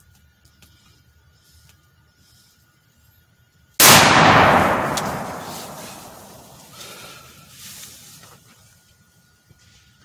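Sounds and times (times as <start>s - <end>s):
shotgun shot with echo: 3.8s - 6.7s.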